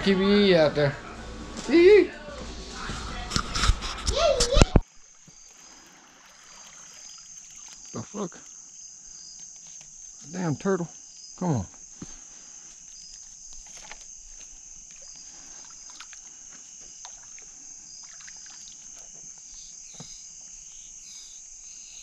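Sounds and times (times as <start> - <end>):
crickets chirping: 2.6 - 22.0.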